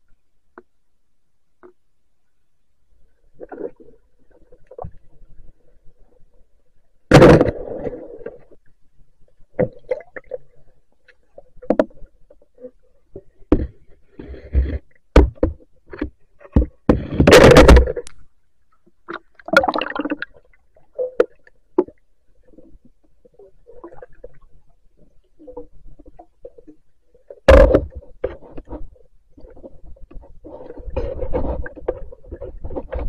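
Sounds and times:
underwater knocks and scrapes: 0:03.1 - 0:33.0
water swirling: 0:19.4 - 0:21.0.

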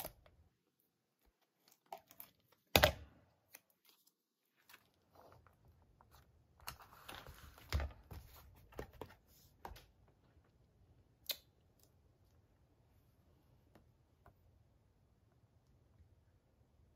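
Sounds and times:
paper rustling and sliding: 0:04.6 - 0:09.8.

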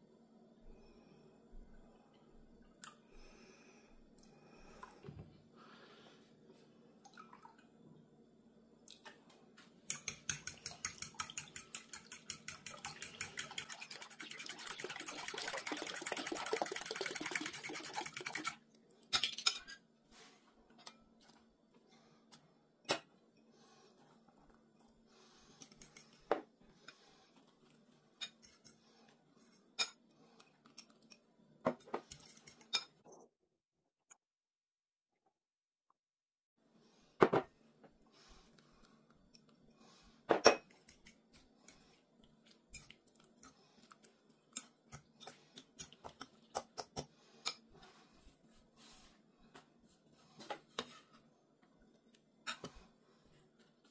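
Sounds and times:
fork whisking eggs in glass bowl: 0:09.8 - 0:19.8, 0:25.5 - 0:27.0, 0:31.9 - 0:32.9, 0:40.6 - 0:42.0, 0:42.7 - 0:47.7.

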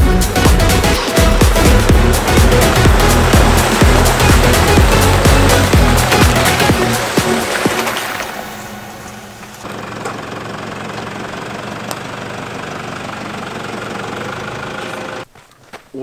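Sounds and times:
pickup truck engine idling: 0:00.0 - 0:15.3
loud sound: 0:00.7 - 0:09.8.

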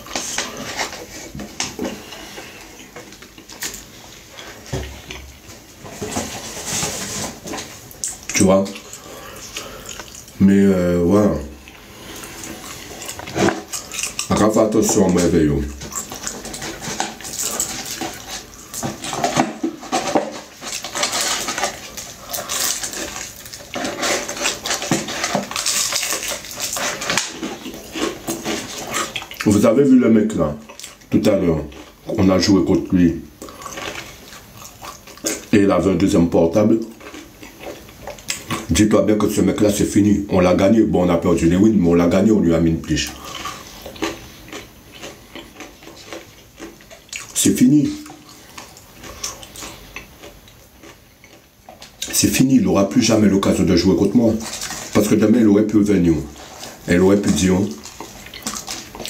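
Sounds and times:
cardboard bucket rustling: 0:04.6 - 0:07.9
crunchy biting and chewing: 0:11.2 - 0:29.8, 0:33.4 - 0:35.6, 0:36.6 - 0:38.8, 0:42.8 - 0:59.0.

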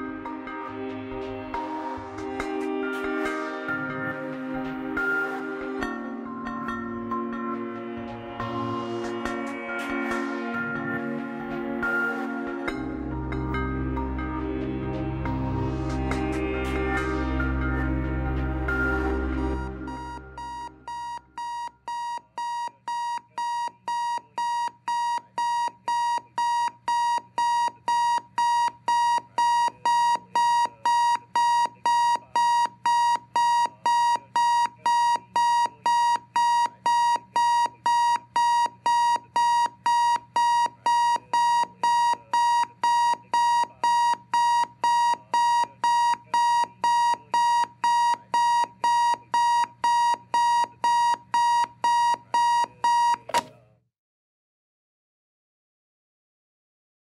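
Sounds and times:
alarm clock beeping: 0:16.0 - 0:53.5.

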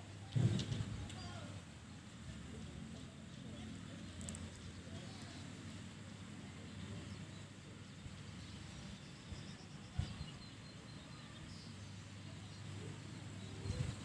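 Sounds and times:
faint bird chirps: 0:06.7 - 0:14.0.

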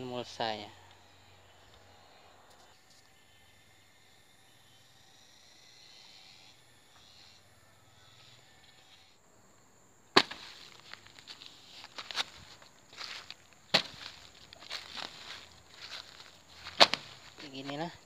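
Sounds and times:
quiet outdoor ambience: 0:00.0 - 0:18.0
sharp knock: 0:10.2 - 0:10.4.

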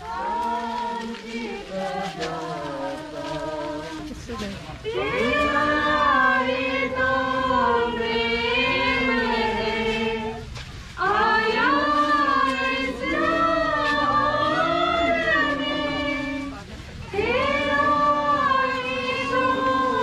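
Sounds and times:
congregation singing a hymn: 0:00.0 - 0:20.0.

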